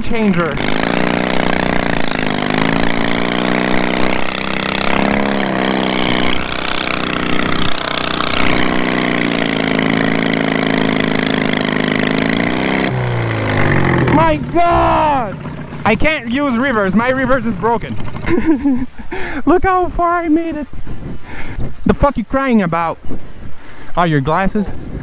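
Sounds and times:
lawn mower engine running hard: 0.0s - 19.0s
drive belt slipping: 0.5s - 18.7s.

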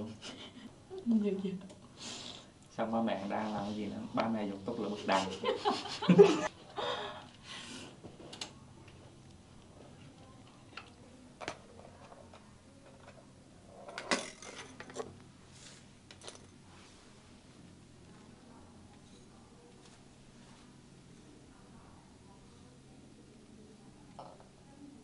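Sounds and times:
metal tools clicking and clinking: 13.9s - 15.1s.

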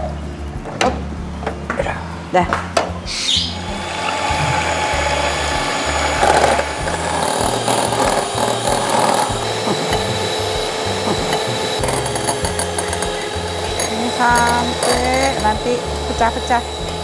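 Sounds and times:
electric hand mixer whisking: 3.5s - 17.0s.

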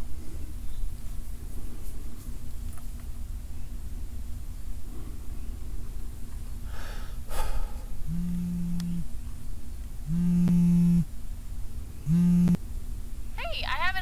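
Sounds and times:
short breathy gasp: 6.7s - 7.9s
phone vibrating buzz: 8.0s - 9.2s, 10.0s - 11.1s, 12.0s - 12.6s.

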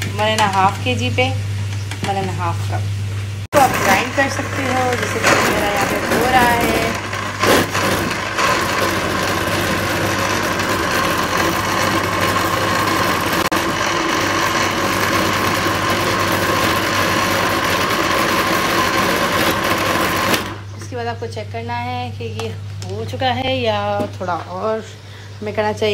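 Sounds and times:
electric blender running: 3.5s - 20.7s.

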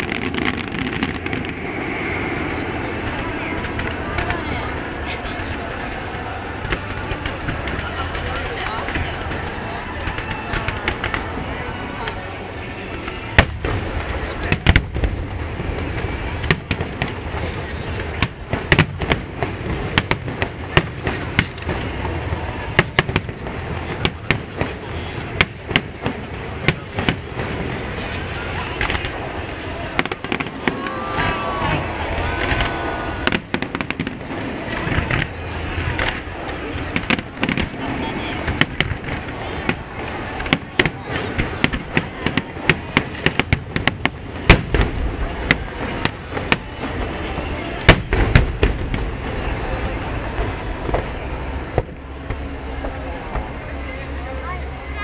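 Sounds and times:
firework shells bursting: 12.9s - 53.6s.

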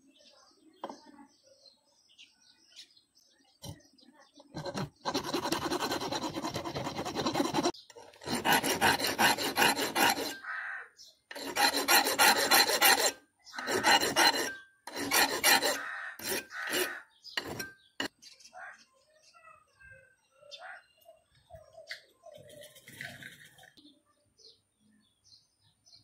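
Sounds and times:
hand file rasping on metal: 4.5s - 10.4s, 11.3s - 18.1s.

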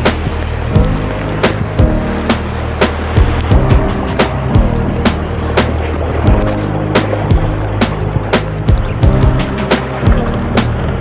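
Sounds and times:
background music with drum beat: 0.0s - 11.0s.

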